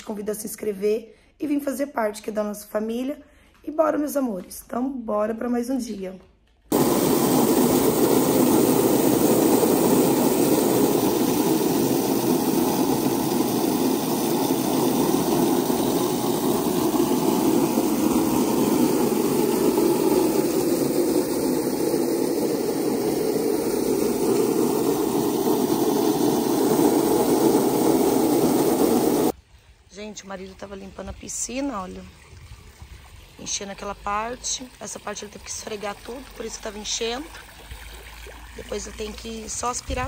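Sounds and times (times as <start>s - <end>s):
water jets spraying into pool: 6.7s - 29.4s, 31.5s - 40.0s.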